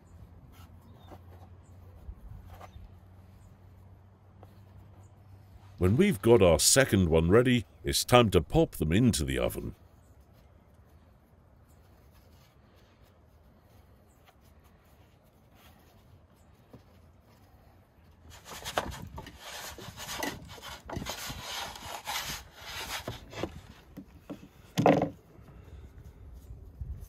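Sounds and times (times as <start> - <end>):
wooden peel scraping on table: 18.2 - 25.2
dull thump: 24.3 - 25.2.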